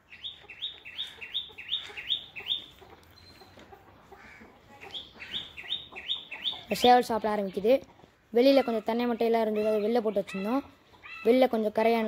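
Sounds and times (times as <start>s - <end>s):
bird chirping rapidly: 0.0s - 3.6s, 4.8s - 7.8s.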